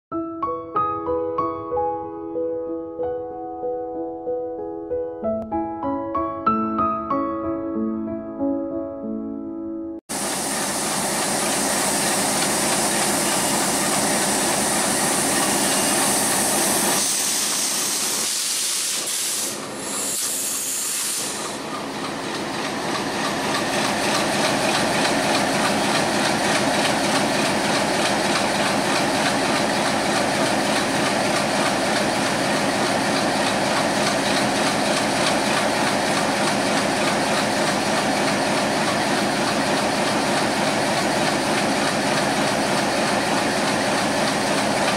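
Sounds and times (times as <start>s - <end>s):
strong hiss: 10.1s - 21.6s
diesel locomotive engine hum: 10.1s - 44.9s.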